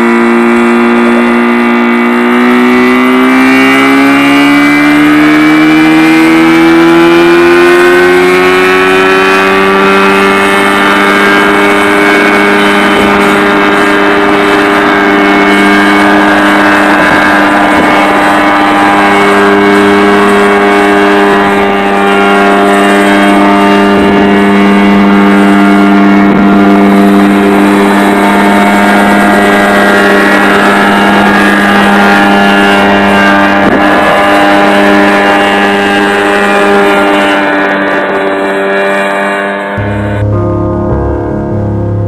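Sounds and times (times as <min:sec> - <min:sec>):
helicopter engine and rotor: 0:09.4 - 0:23.1, 0:23.8 - 0:32.3.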